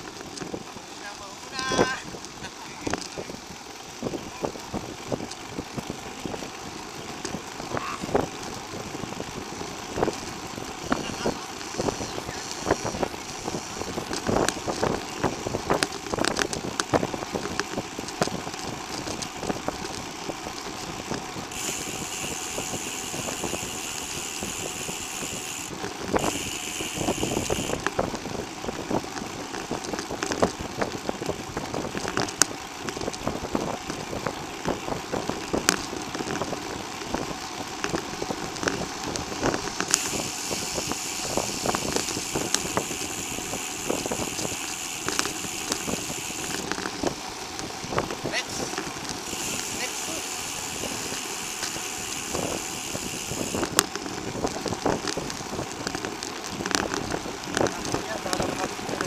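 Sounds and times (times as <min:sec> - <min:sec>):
bicycle rattles and knocks: 0:00.0 - 0:59.0
wind and tyre noise: 0:00.0 - 0:59.0
high steady buzz: 0:21.5 - 0:27.9, 0:39.8 - 0:46.8, 0:49.2 - 0:53.8.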